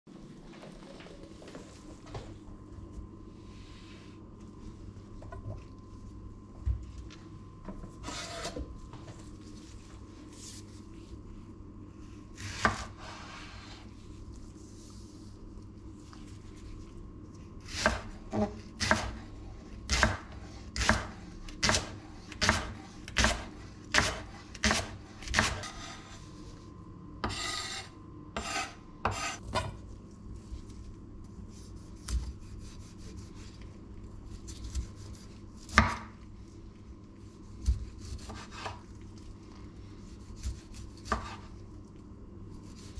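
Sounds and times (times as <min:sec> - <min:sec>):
knife chopping on cutting board: 0:12.4 - 0:13.3, 0:17.7 - 0:19.2, 0:19.9 - 0:26.2, 0:27.2 - 0:29.8, 0:34.6 - 0:36.1, 0:37.6 - 0:38.8, 0:40.2 - 0:41.5.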